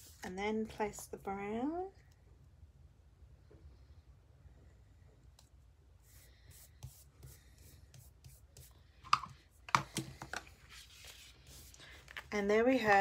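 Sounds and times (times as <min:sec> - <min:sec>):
faint paper rubbing: 0:00.0 - 0:00.4, 0:10.5 - 0:13.0.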